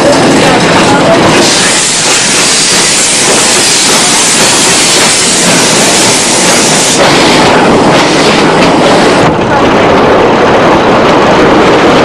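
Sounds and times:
steam locomotive hissing: 0.0 - 9.3.

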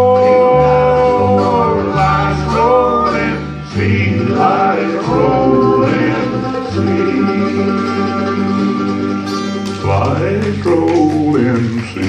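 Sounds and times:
bluegrass band playing: 0.0 - 12.0
men singing: 0.0 - 12.0.

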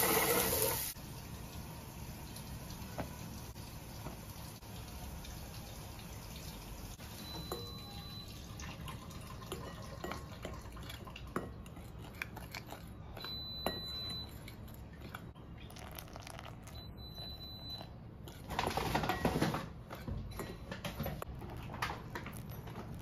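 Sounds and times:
water trickling: 1.1 - 11.3
spoon clinking on glass bowl: 7.2 - 8.3, 9.2 - 17.9, 19.1 - 21.2
spoon stirring flour: 9.2 - 23.0.

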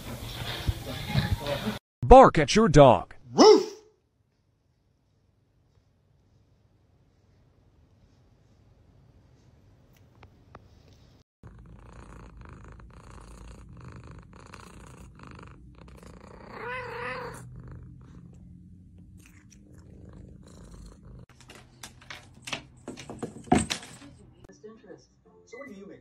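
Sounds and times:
cat purring: 11.0 - 21.4
cat crying: 16.4 - 17.4.

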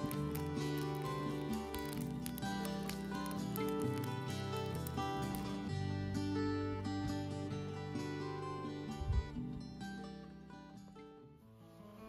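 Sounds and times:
background music with held notes: 0.0 - 12.0.

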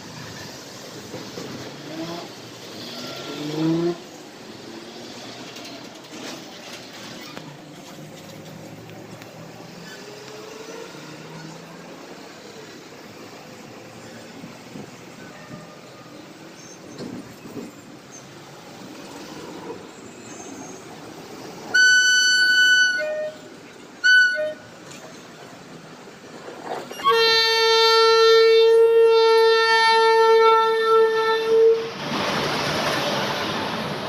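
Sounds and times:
train wheels rushing on rails: 0.0 - 28.5, 31.1 - 34.0
locomotive air horn blasts: 21.7 - 24.9, 26.9 - 31.9.

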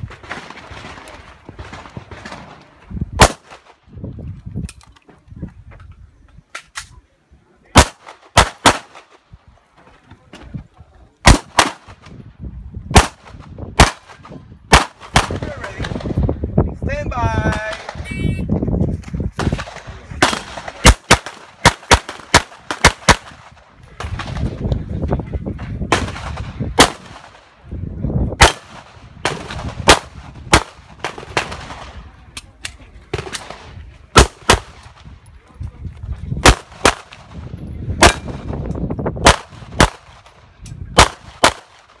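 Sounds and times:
pistol shots: 3.2 - 3.8, 7.8 - 9.2, 11.2 - 12.1, 12.9 - 16.1, 19.4 - 24.5, 25.9 - 27.4, 28.4 - 32.0, 36.4 - 37.4, 38.0 - 38.5, 39.2 - 40.3, 40.9 - 42.0.

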